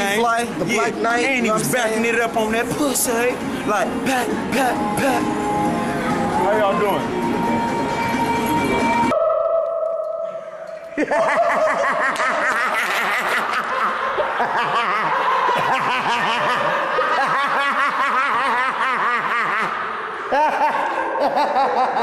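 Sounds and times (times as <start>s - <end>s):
people laughing: 10.8s - 22.0s.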